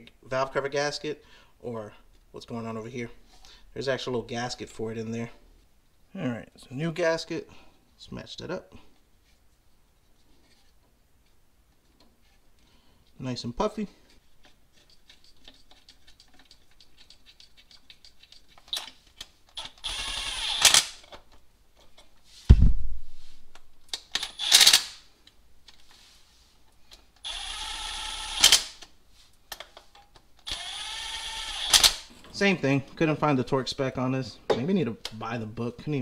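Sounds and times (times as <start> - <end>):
cordless power tool bursts: 19.6 - 21.0, 24.2 - 25.0, 27.2 - 28.8, 30.4 - 32.1
heavy thump: 22.5 - 23.5.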